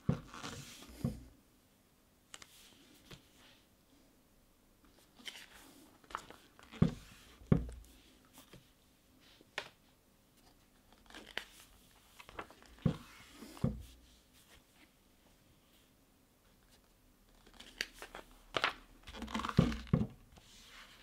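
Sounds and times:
soft thumps of pages smoothed: 0.0 - 1.3, 2.3 - 3.7, 4.9 - 21.0
paper pages rustling: 4.9 - 8.7, 10.4 - 15.0, 16.6 - 21.0.

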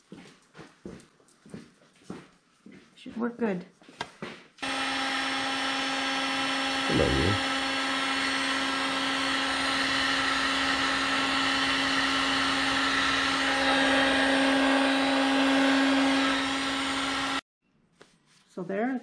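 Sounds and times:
heat gun motor hum: 4.6 - 17.4.

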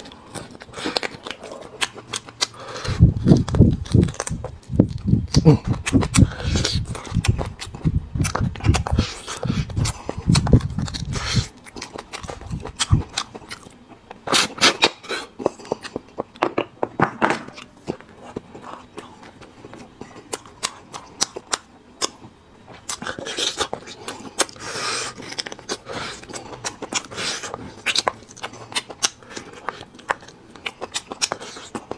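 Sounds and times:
chewing: 0.0 - 16.4, 17.6 - 31.9
mouth clicks and smacks: 0.2 - 16.7, 22.8 - 31.9.

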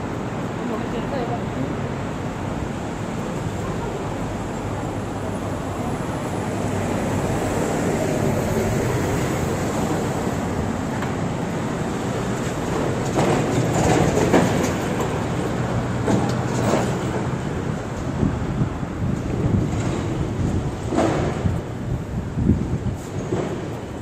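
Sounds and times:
bus engine hum: 0.0 - 24.0
city road traffic: 0.0 - 24.0.

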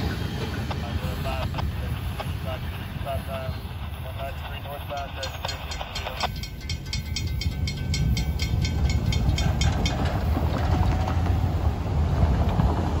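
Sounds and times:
crossing warning bell ringing: 4.9 - 11.6.

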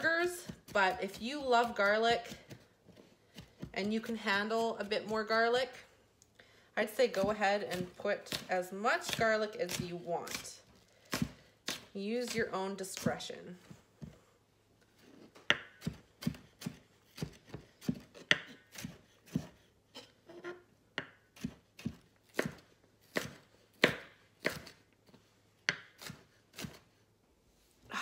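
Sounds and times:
knife chopping on wooden board: 7.1 - 13.2, 15.4 - 20.1, 21.0 - 26.9.

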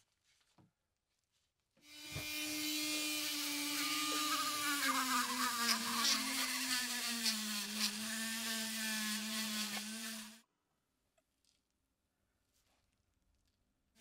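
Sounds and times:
rotary tool whining: 1.9 - 10.4.

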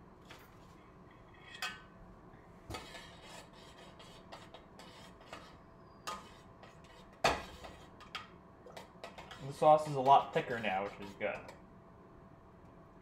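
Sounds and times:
metal spoon scraping a saucepan: 1.2 - 1.8, 2.7 - 11.6.

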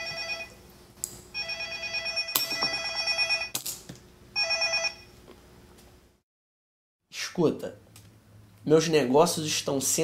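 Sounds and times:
telephone ringing: 0.0 - 0.6, 1.4 - 3.5, 4.4 - 5.1.

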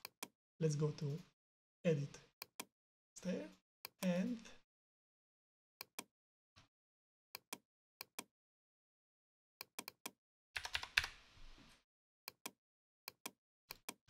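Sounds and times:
computer mouse clicks: 9.6 - 11.2
keyboard keystrokes: 10.6 - 11.1.

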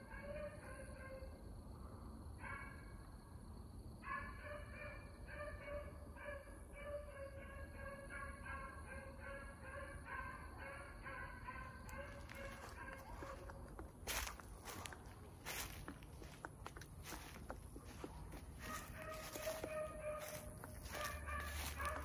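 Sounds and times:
distant dogs baying: 4.0 - 22.0.

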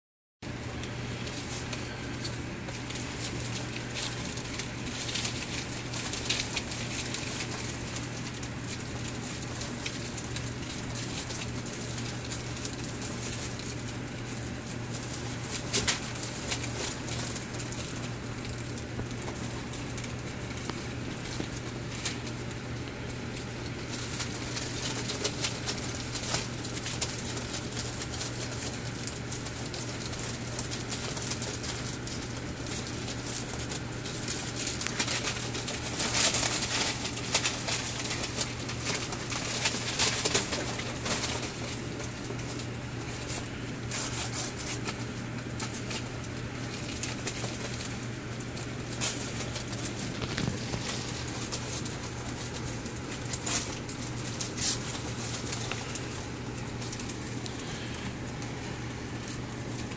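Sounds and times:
puppies rustling newspaper: 0.4 - 59.9.

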